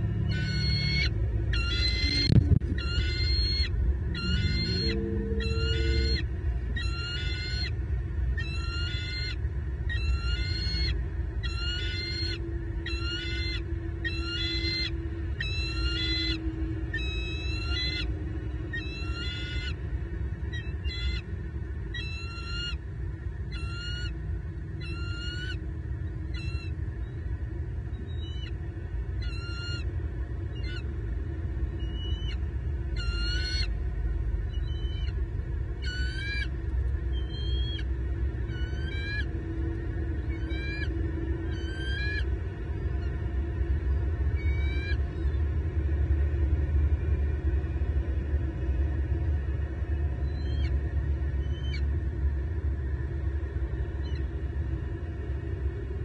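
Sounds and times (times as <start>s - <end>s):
low rumble: 0.0s - 56.0s
eagle calling: 0.2s - 7.8s, 8.4s - 19.8s, 21.9s - 22.8s, 23.5s - 24.2s, 24.8s - 25.6s, 29.2s - 29.9s, 31.8s - 33.8s, 34.4s - 35.2s, 35.8s - 36.5s, 37.1s - 39.4s, 40.2s - 42.3s.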